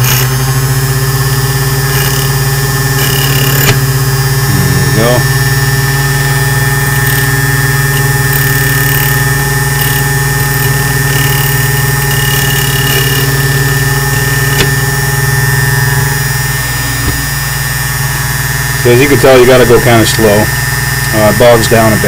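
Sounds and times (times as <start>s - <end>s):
cutter wheel squealing on key: 0.0s - 5.7s, 6.4s - 17.9s
key cutting machine motor: 0.0s - 22.0s.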